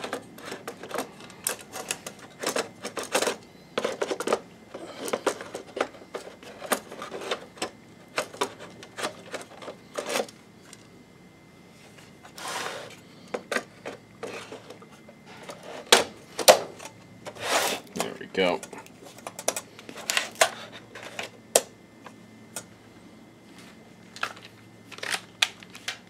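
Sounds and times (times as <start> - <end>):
plastic and metal parts tapping: 0.0 - 10.8.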